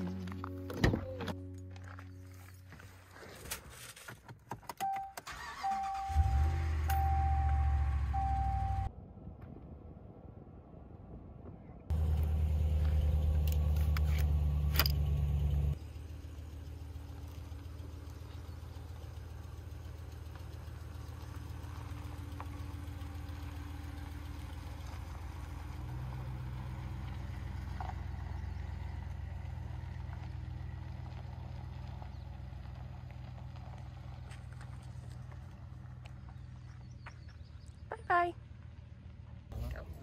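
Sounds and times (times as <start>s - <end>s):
pickup truck engine running: 11.9s - 37.7s.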